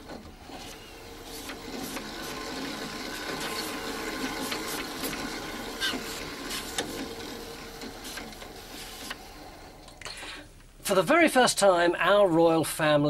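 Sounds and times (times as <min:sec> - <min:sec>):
mechanical whir with hum: 0:00.0 - 0:10.4.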